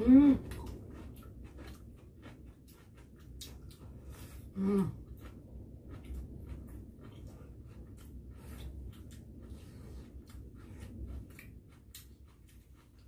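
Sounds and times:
person humming: 0.0s - 0.4s, 4.6s - 5.0s
soft chewing: 0.0s - 13.0s.

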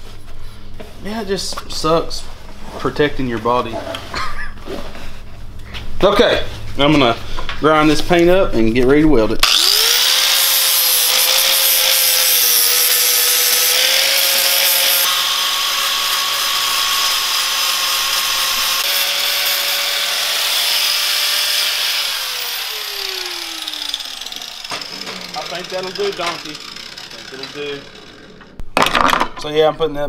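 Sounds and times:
angle grinder motor whine: 9.4s - 28.6s
grinder spinning down: 9.4s - 28.6s
grinding disc grating on metal: 9.5s - 28.6s.

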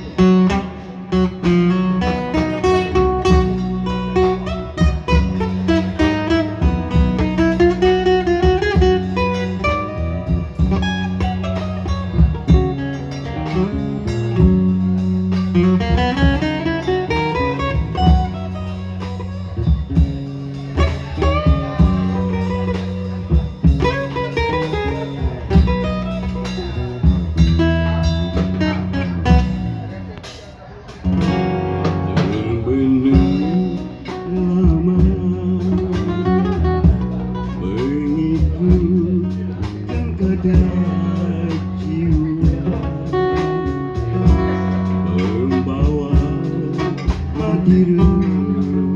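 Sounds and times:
held bass line: 0.0s - 48.9s
picked guitar melody: 0.0s - 48.9s
man singing into microphone: 32.1s - 48.9s.

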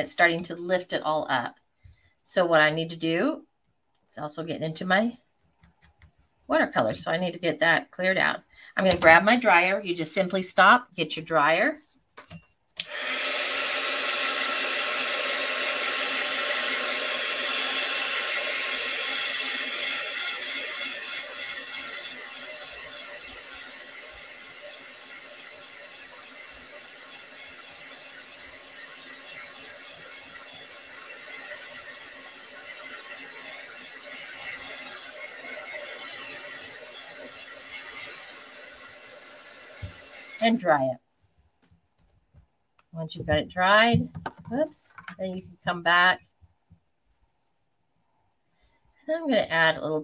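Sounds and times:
heat dryer blowing: 12.8s - 40.6s.

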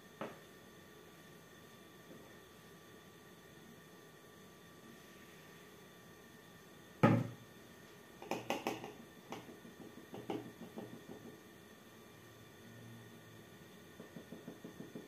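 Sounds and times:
plastic bowl knocking on table: 7.0s - 7.4s, 8.2s - 11.4s
spatula tapping and scraping: 8.2s - 11.4s.

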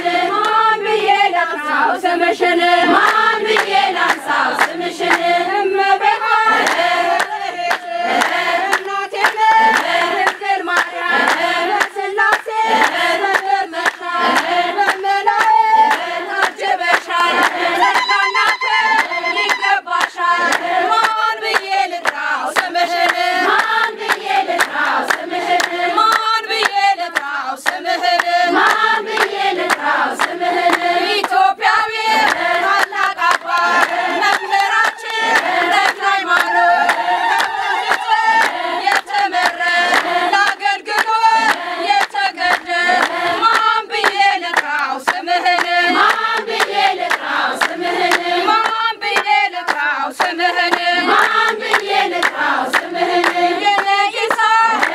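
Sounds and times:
women singing a hymn: 0.0s - 54.9s
hand clapping: 0.3s - 0.6s, 2.8s - 54.9s.

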